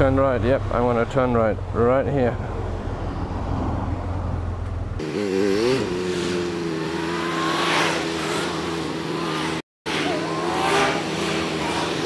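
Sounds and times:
motorcycle engine revving: 5.0s - 12.0s.

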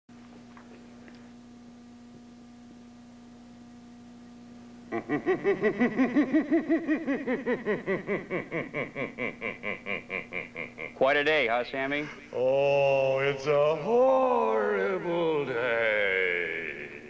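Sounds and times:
low steady hum: 0.1s - 17.0s
cackling laugh: 4.9s - 11.0s.

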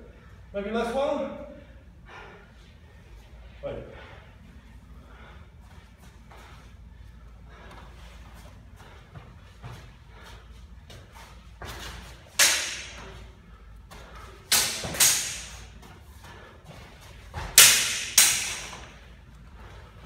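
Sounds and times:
sword blades clashing: 12.4s - 13.1s, 14.5s - 15.7s, 17.6s - 18.9s.

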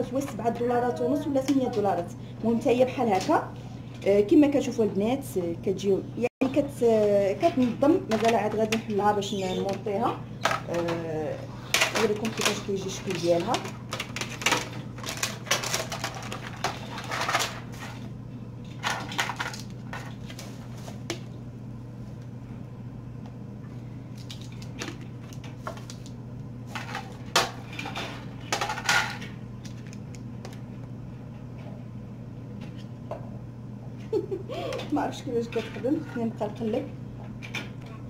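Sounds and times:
steady low hum: 0.0s - 38.0s
plastic discs knocking and clattering: 7.4s - 9.0s, 9.6s - 18.0s, 26.8s - 29.3s
plastic bag rustling: 11.6s - 18.1s.

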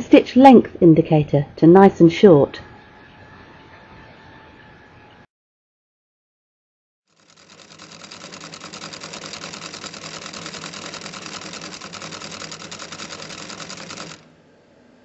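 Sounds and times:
sewing machine stitching: 7.1s - 14.3s.

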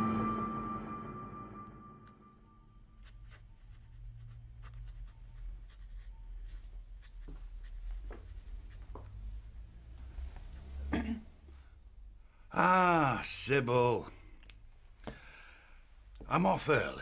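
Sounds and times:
pen scratching on paper: 2.9s - 9.4s.

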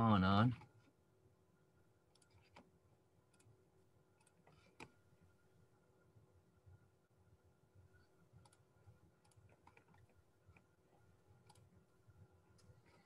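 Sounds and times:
computer mouse and keyboard clicks: 2.1s - 2.7s, 4.2s - 5.0s, 8.4s - 10.7s, 11.4s - 11.7s.

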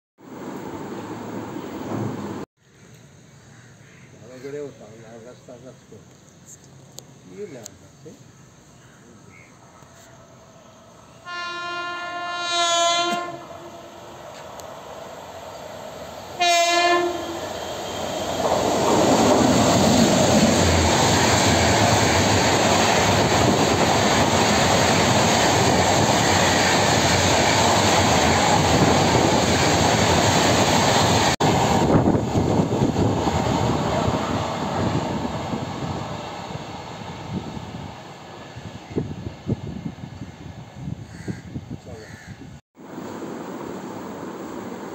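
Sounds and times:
train horn blasts: 11.2s - 14.0s, 16.4s - 17.6s
train wheels on rails: 14.0s - 40.2s.

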